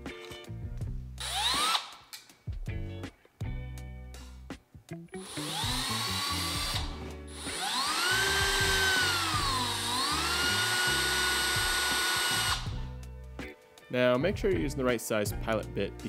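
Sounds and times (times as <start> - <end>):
power drill motor whine: 1.2 - 1.9, 5.2 - 12.8.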